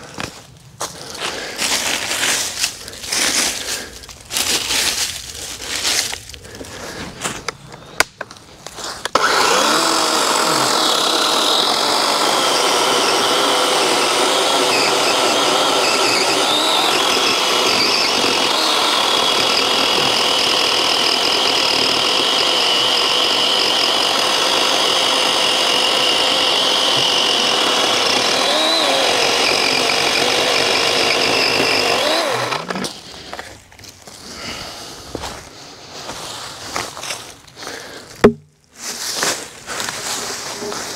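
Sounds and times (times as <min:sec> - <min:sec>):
battery chainsaw cutting log: 0:09.0 - 0:33.0, 0:37.8 - 0:38.4.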